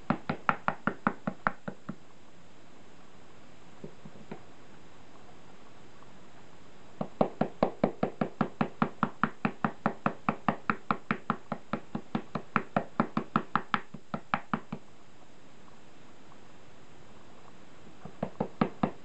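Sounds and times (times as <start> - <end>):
brush tapping on board: 0.0 - 2.0, 7.0 - 14.9, 18.0 - 19.0.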